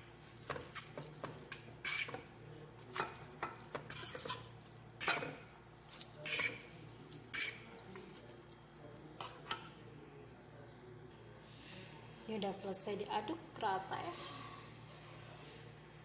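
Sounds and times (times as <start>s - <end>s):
fork scraping frying pan: 0.4s - 8.0s.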